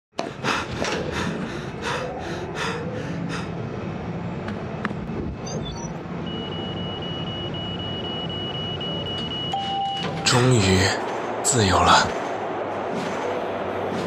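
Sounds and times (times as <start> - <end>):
low machine hum: 0.3 - 14.0
electronic interface beeps: 5.4 - 10.1
noisy pulses: 10.4 - 14.0.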